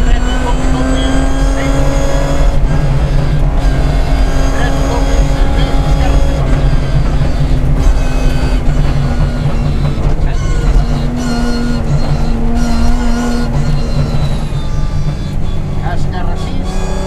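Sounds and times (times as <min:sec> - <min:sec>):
rally car engine from inside cabin: 0:00.0 - 0:17.0.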